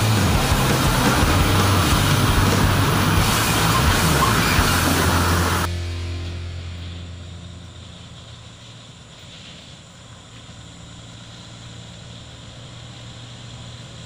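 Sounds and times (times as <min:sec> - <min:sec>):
diesel truck engine running: 0:00.0 - 0:09.1.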